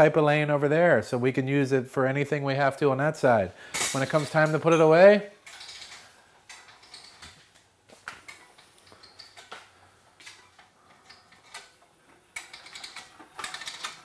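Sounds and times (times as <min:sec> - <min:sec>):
hose reel clicking: 0:05.4 - 0:14.0.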